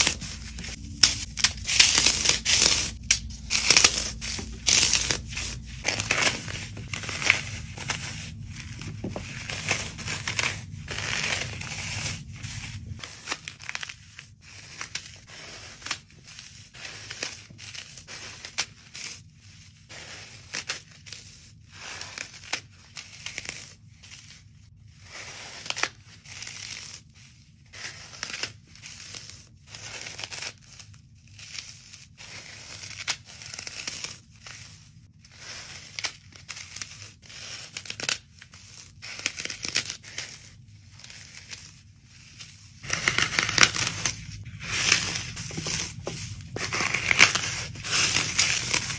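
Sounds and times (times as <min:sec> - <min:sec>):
floral foam crunching: 0:00.0 - 0:18.8, 0:37.6 - 0:48.9.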